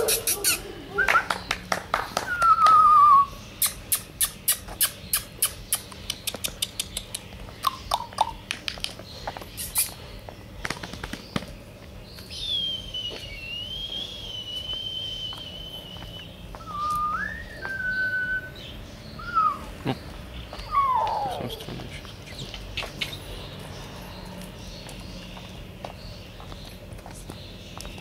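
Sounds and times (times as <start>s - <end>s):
sharp mouth clicks: 3.6s - 9.0s, 9.6s - 10.0s, 21.1s - 23.2s
person whistling: 12.6s - 18.5s.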